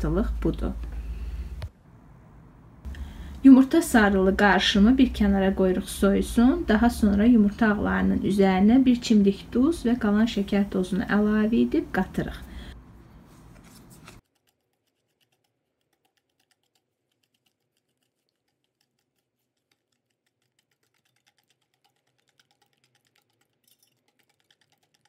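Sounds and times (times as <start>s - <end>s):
whisk clicking against steel bowl: 14.2s - 25.0s.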